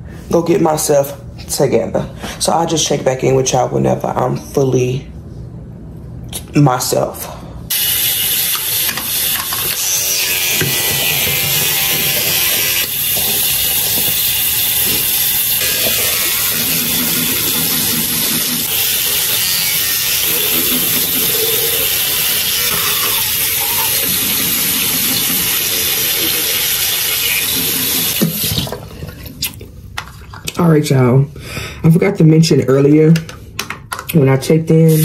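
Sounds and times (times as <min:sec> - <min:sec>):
toothbrush scrubbing teeth: 0:09.3 - 0:29.6.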